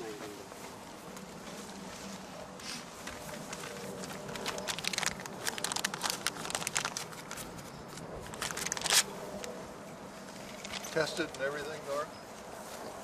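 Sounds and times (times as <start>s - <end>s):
plastic bag crinkling: 3.2s - 9.5s.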